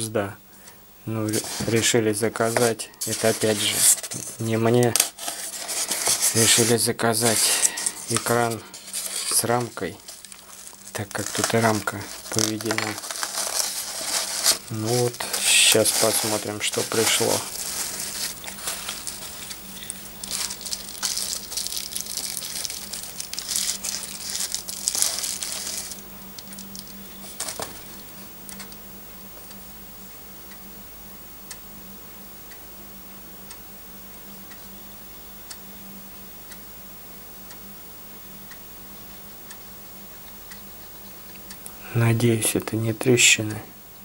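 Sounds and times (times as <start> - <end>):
low steady hum: 0.0 - 44.0
quiet handling: 0.6 - 29.6
bubble wrap crinkling: 1.3 - 28.0.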